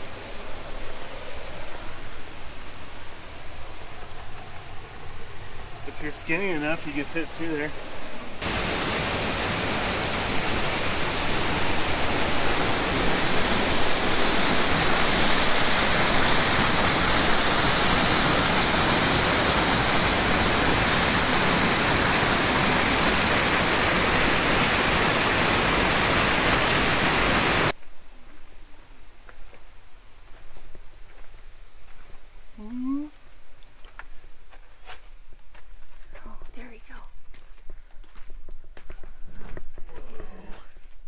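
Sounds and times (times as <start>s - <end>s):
waterfall rushing: 0.0s - 27.8s.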